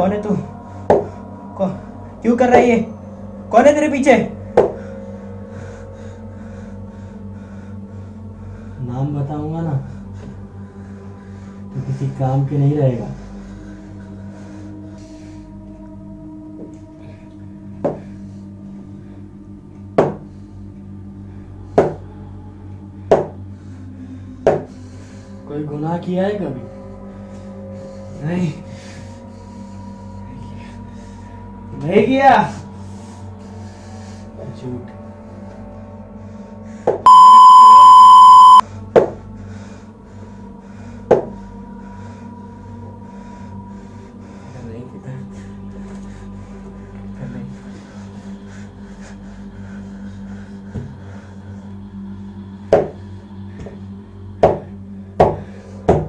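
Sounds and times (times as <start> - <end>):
electronic buzzer beep: 37.1 - 38.6
faint high tone: 37.1 - 38.6.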